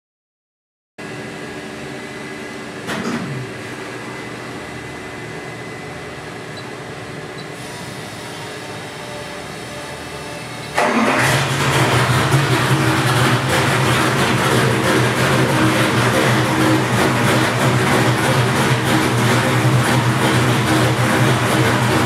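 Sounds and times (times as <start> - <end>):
equipment hum: 1.0 - 22.0
engine cranking and firing: 10.7 - 22.0.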